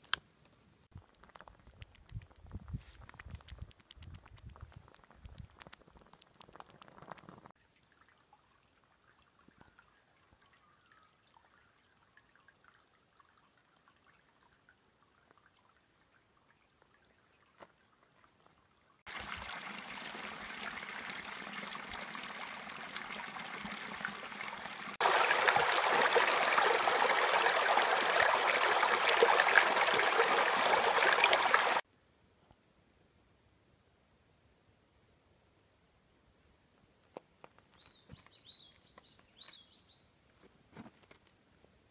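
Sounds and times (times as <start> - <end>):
creek water trickling over stones: 0.0 - 31.8, 37.0 - 40.1.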